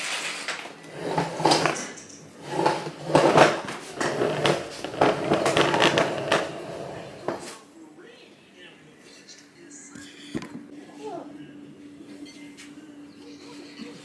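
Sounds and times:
plastic high chair clattering: 0.4s - 7.5s.

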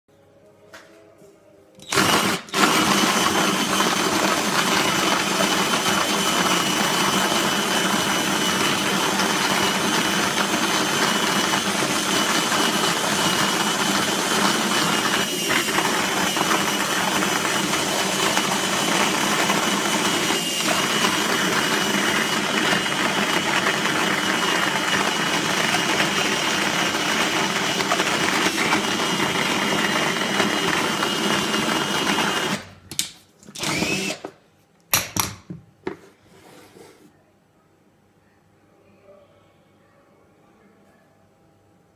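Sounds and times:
drill grinding coffee beans: 1.8s - 32.7s, 33.6s - 34.3s.

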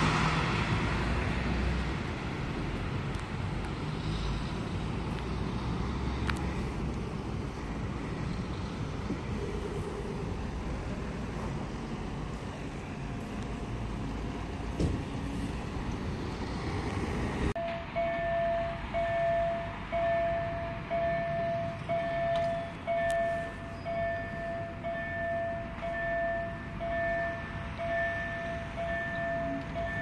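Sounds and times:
traffic noise: 0.0s - 30.0s
level crossing bell dinging: 17.6s - 30.0s.

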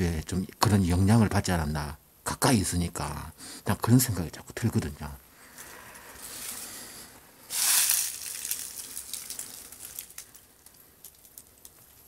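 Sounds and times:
dry leaves rustling and crackling: 7.5s - 12.0s.

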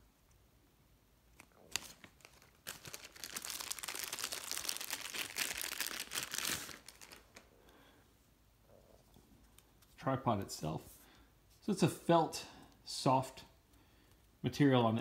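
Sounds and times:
plastic bag crinkling: 1.4s - 7.5s.

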